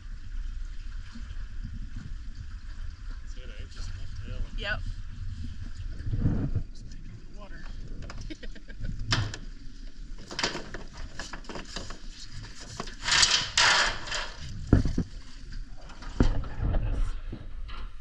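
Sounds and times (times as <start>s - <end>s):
rope rubbing and rustling: 9.7s - 17.3s.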